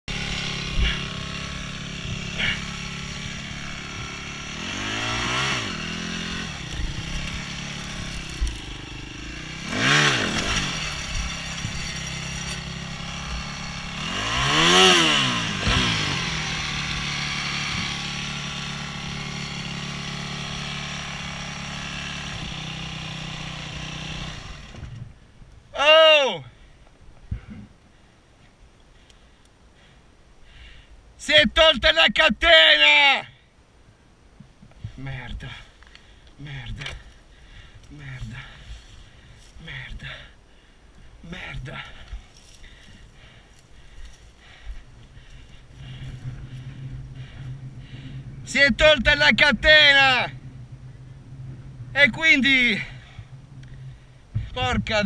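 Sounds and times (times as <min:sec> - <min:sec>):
motorbike engine revving: 0:00.0 - 0:25.2, 0:36.4 - 0:40.3, 0:41.3 - 0:55.0
motorbike engine idling: 0:00.0 - 0:25.4, 0:34.8 - 0:55.0.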